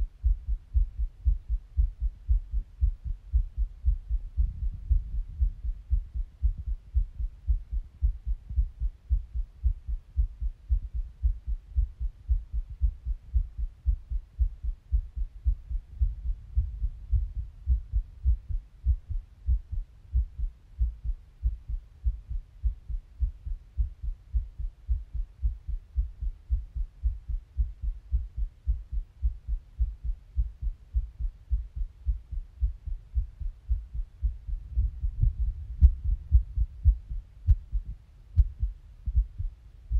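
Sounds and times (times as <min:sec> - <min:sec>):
heartbeat thumps: 0:00.0 - 0:39.9.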